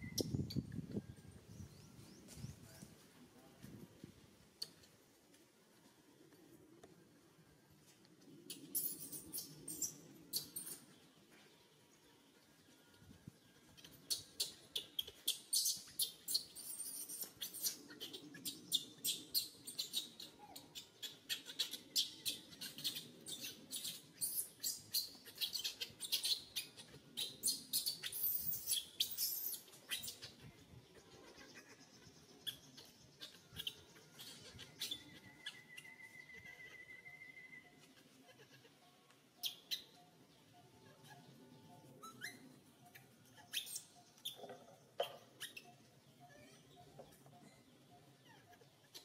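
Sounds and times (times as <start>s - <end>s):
baby monkey squeaking: 13.8s - 30.4s, 32.4s - 37.0s, 39.4s - 40.0s, 40.8s - 47.2s, 48.1s - 49.0s.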